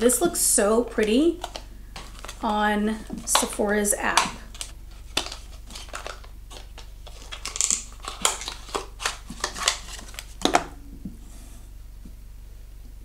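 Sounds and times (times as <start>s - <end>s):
packaging rustle: 1.0s - 10.7s.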